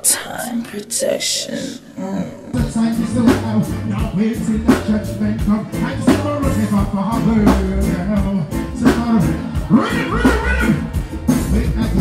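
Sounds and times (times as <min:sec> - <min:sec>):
man singing into microphone: 0:02.2 - 0:12.0
live reggae band: 0:02.5 - 0:12.0.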